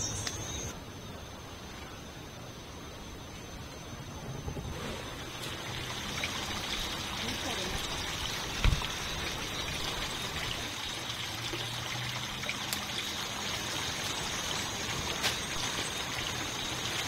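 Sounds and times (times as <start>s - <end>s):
water trickling: 5.0s - 17.0s.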